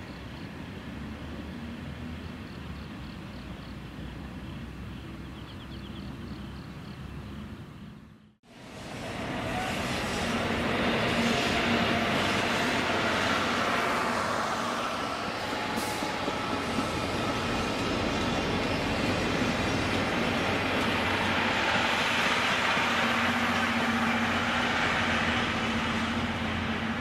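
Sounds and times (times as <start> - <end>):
train wheels rattling on rails: 8.7 - 27.0.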